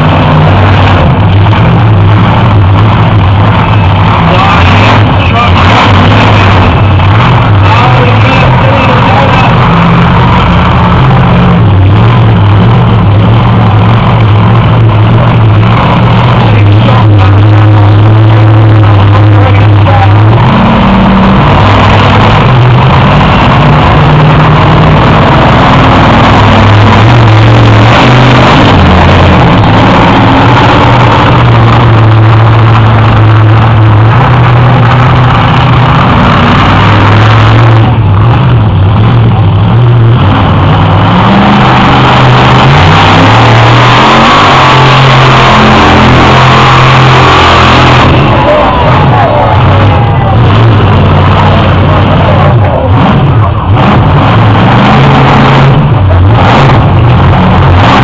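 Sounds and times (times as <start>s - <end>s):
truck engine revving: 0.0s - 58.0s.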